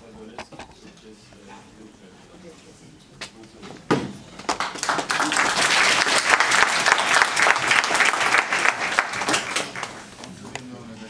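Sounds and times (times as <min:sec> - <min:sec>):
audience applauding: 0:04.4 - 0:10.1.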